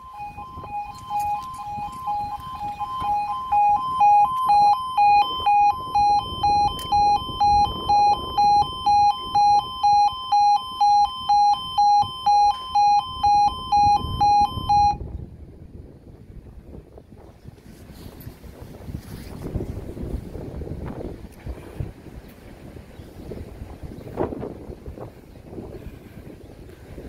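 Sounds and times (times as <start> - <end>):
level crossing two-tone alarm: 0.0 - 15.0.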